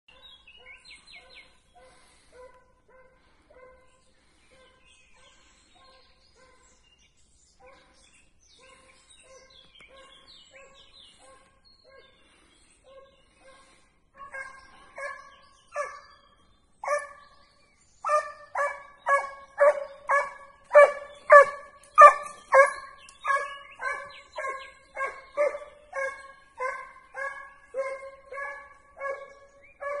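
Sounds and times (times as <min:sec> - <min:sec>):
hound baying: 0:18.1 - 0:30.0.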